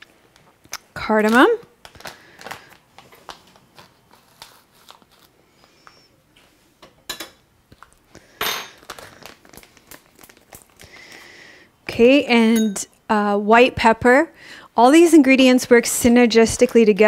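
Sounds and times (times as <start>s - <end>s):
plastic bag crinkling: 0.0s - 5.4s, 7.8s - 11.5s.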